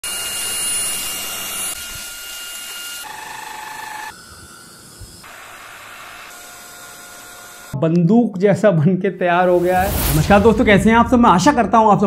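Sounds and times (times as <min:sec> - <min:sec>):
stick vacuum cleaner running: 0:00.0 - 0:07.8.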